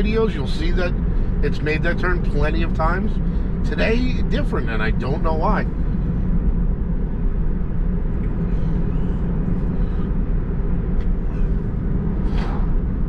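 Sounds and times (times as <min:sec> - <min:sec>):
road and tyre rumble: 0:00.0 - 0:13.0.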